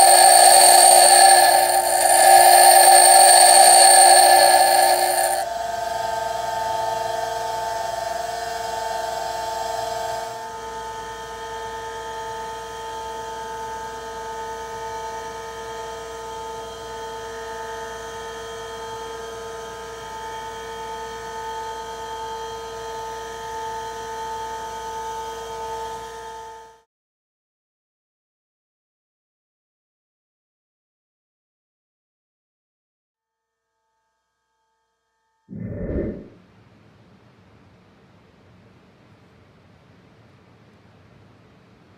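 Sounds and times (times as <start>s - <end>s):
bench grinder grinding steel: 0.0s - 5.4s
grinder whine: 0.0s - 5.5s.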